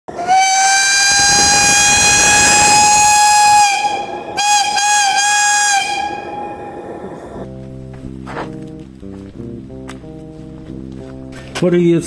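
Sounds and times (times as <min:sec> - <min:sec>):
steam whistle blowing: 0:00.1 - 0:07.5
steam hissing: 0:00.2 - 0:07.6.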